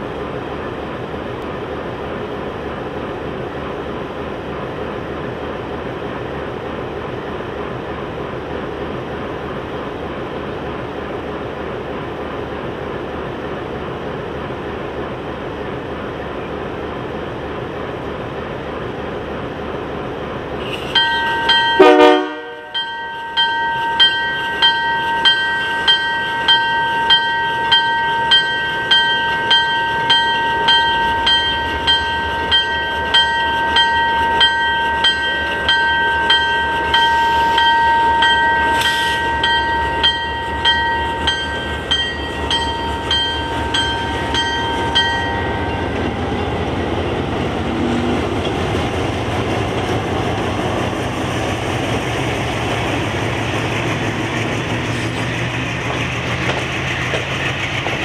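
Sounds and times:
diesel locomotive engine idling: 0.0 - 58.0
locomotive bell ringing: 20.8 - 47.6
loud horn blast: 21.8 - 22.8.

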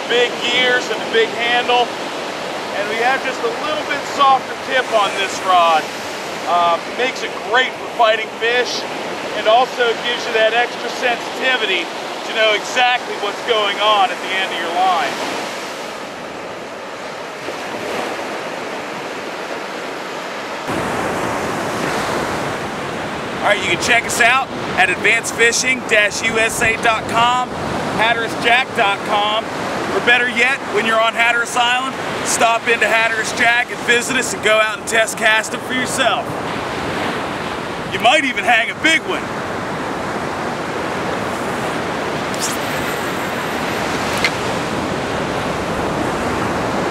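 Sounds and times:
ocean surf on beach: 0.0 - 46.9
wind buffeting microphone: 39.0 - 46.9
fishing rod swish: 42.3 - 44.5
sharp click: 44.1 - 44.4.

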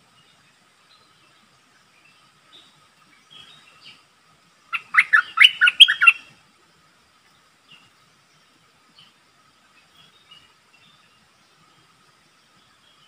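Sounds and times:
bird singing loud phrase: 4.7 - 6.3.

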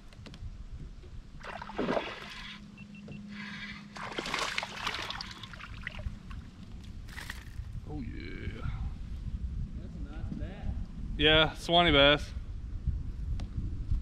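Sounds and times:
fish splashing at water surface: 4.0 - 6.1.

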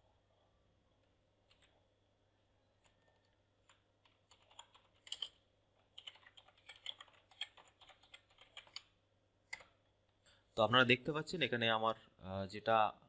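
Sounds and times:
computer keyboard typing: 1.4 - 1.8, 2.8 - 9.8.

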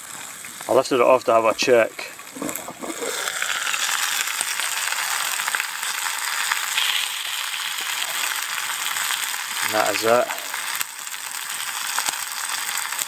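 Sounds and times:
small crackles: 0.0 - 0.9, 2.0 - 13.0
food sizzling in a pot: 0.0 - 13.0.

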